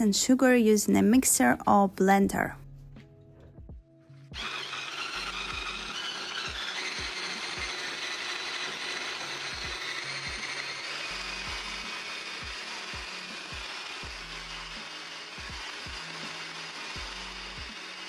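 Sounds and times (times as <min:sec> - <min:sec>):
stick blender motor whirring: 0:04.4 - 0:18.0.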